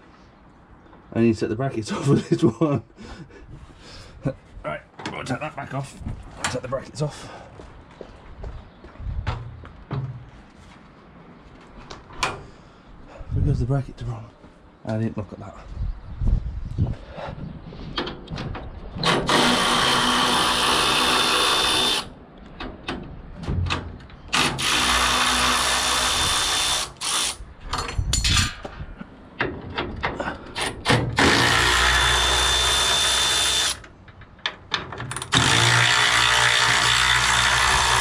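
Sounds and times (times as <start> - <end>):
power drill driving screws: 19.0 - 22.1, 24.3 - 27.4, 30.6 - 33.8, 35.3 - 38.0.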